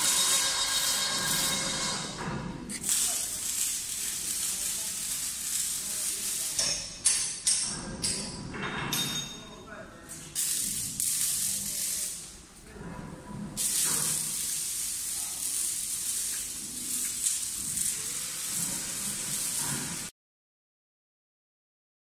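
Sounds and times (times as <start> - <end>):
machine hissing: 0.0 - 6.6, 10.4 - 12.3, 13.6 - 20.1.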